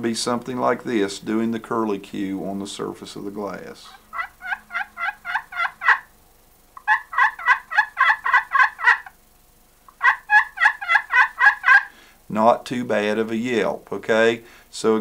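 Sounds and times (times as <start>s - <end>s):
turkey call hen yelps: 3.9s - 6.1s, 6.8s - 9.2s, 9.9s - 12.0s.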